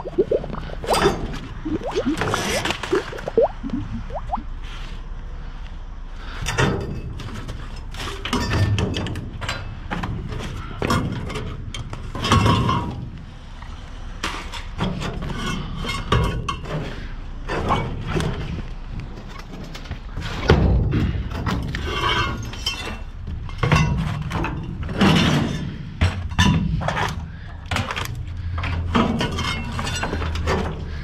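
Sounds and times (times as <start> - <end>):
metal scrap clanking in dumpster: 23.6 - 26.8.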